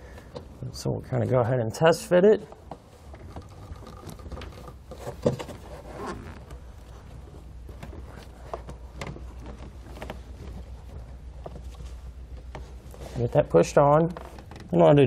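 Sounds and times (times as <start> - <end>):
rubber hose rubbing: 2.8 - 11.1.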